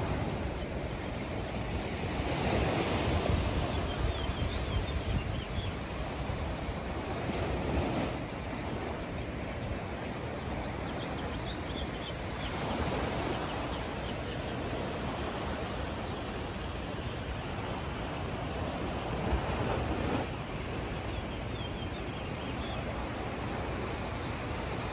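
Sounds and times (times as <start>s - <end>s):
ocean surf washing in: 0.0s - 0.7s.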